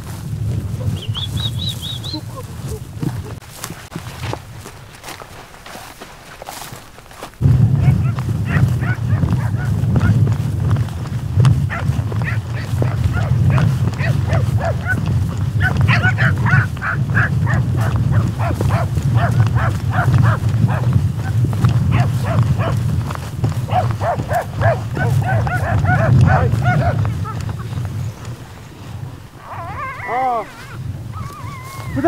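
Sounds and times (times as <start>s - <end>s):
steady low rumble: 0.0s - 4.8s, 7.2s - 30.0s
dogs barking and yelping: 0.7s - 2.8s, 7.8s - 10.2s, 11.7s - 28.3s, 29.4s - 32.0s.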